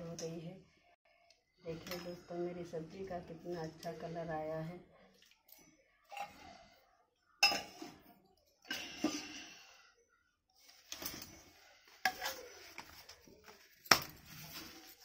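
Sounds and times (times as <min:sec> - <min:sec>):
soft handling noise: 0:10.6 - 0:15.0.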